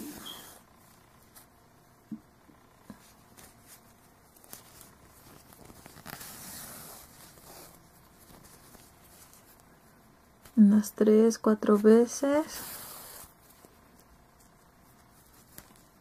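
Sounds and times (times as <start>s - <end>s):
yarn rustling: 3.0s - 10.6s.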